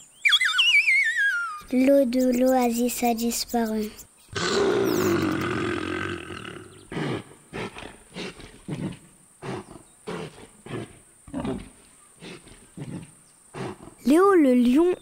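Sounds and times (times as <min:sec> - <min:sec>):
lion roaring: 0:04.3 - 0:14.1.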